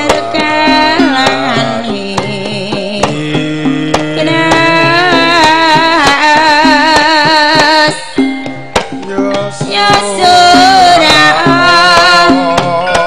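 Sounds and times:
hand drum strokes: 0.0s - 13.0s.

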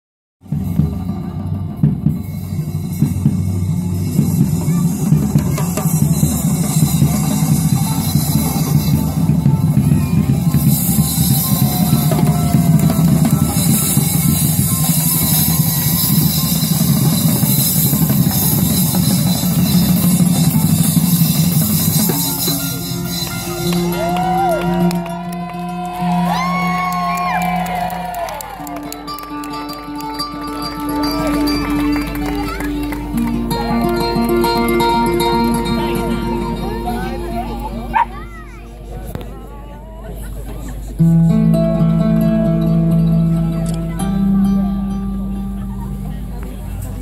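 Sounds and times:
marching drums playing: 0.5s - 24.1s.

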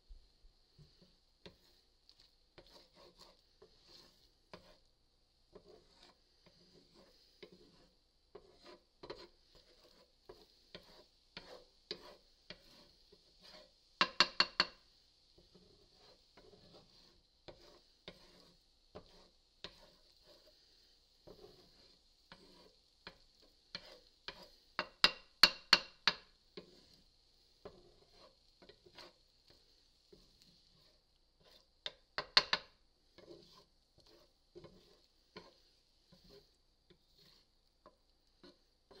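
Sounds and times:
faint high hiss: 0.0s - 2.6s
spatula scraping skillet: 0.6s - 39.0s
spatula knocking on pan: 7.4s - 14.8s, 21.2s - 26.9s, 31.4s - 39.0s.

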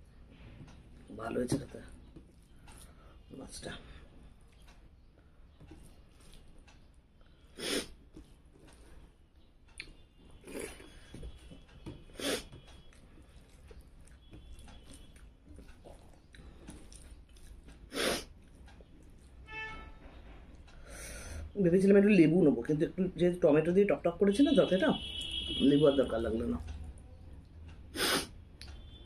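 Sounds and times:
person chewing food: 1.8s - 3.3s, 3.9s - 19.4s.

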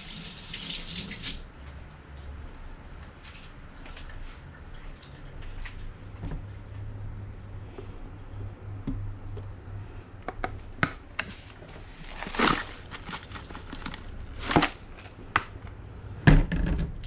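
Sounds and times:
seasoning shaking rustles: 11.8s - 15.1s.

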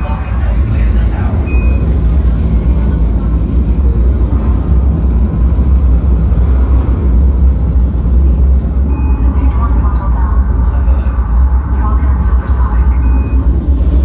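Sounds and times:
deep rumble with hiss: 0.0s - 14.0s.

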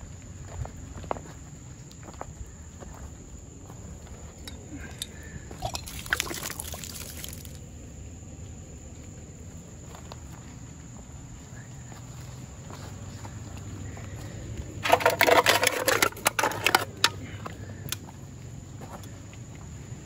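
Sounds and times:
glass and stones clattering: 14.8s - 17.2s.

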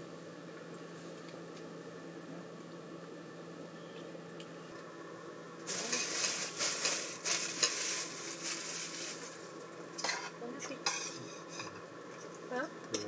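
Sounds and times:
food sizzling in a pan: 5.6s - 12.5s.

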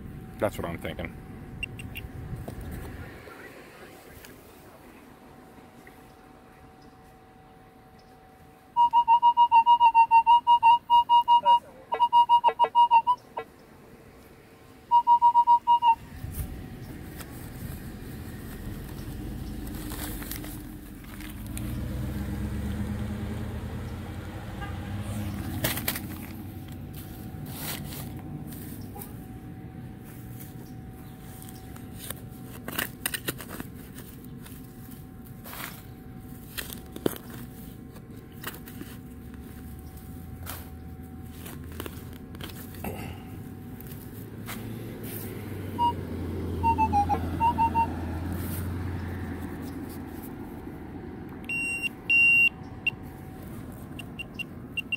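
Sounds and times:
vehicle rumble: 0.0s - 54.9s
metal detector target tone: 8.8s - 13.2s, 14.9s - 16.1s, 45.8s - 48.0s, 51.5s - 53.0s.

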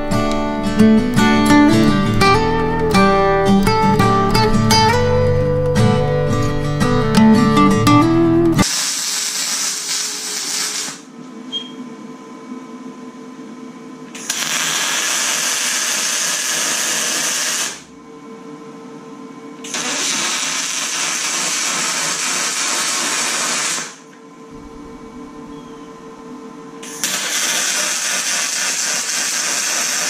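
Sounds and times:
welding machine hum: 0.0s - 11.2s, 14.1s - 18.0s, 19.6s - 30.0s
welding hiss: 8.6s - 11.1s, 14.2s - 17.8s, 19.7s - 24.0s, 26.9s - 30.0s.

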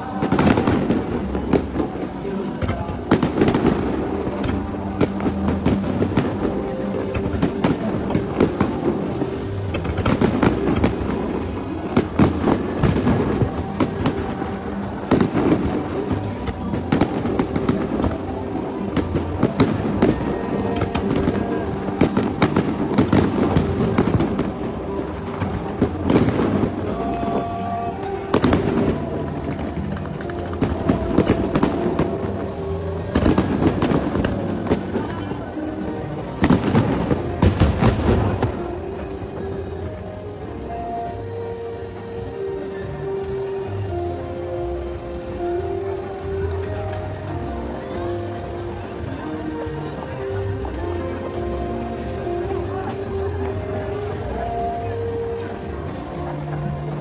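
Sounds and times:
fireworks bursting with bangs: 0.0s - 42.3s
music playing: 0.0s - 57.0s.

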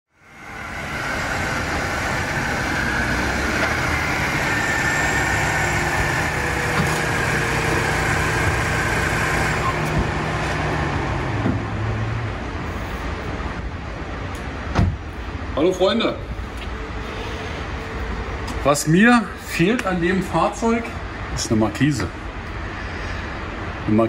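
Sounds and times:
car engine running: 0.2s - 12.7s.

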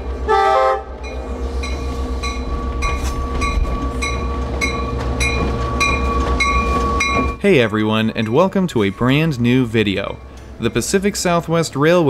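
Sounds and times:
locomotive engine rumble: 0.0s - 12.0s
locomotive air horn: 0.2s - 1.0s
locomotive bell ringing: 1.0s - 12.0s.

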